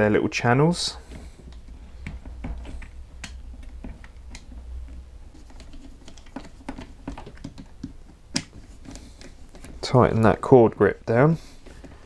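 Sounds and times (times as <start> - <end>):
clicks of wires pressed into plastic: 1.0 - 9.8.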